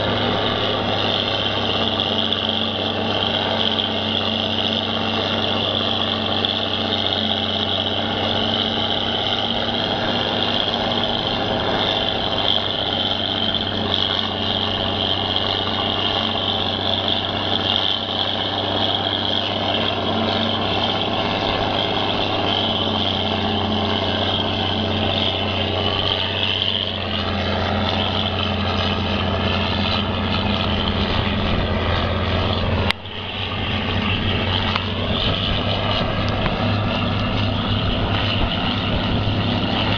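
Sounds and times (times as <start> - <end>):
forage harvester running: 0.0 - 39.9.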